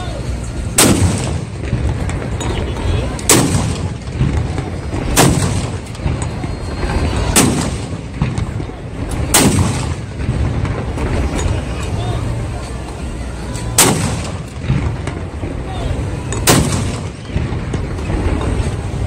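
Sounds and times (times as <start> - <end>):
cannon booms: 0.8 - 2.5, 3.2 - 11.4, 13.8 - 15.6, 16.4 - 18.7.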